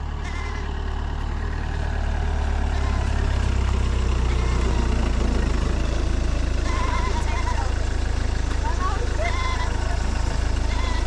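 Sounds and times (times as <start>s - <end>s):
pickup truck engine humming: 0.0s - 11.0s
brief bleat: 0.2s - 0.7s, 10.7s - 11.0s.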